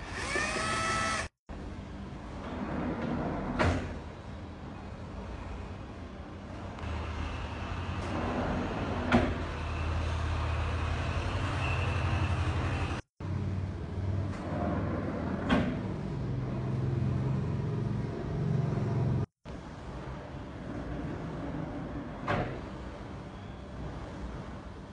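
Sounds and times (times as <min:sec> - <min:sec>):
sliding door rollers rumbling: 0:02.3 - 0:04.0, 0:07.5 - 0:11.6, 0:14.2 - 0:19.3, 0:20.5 - 0:22.8.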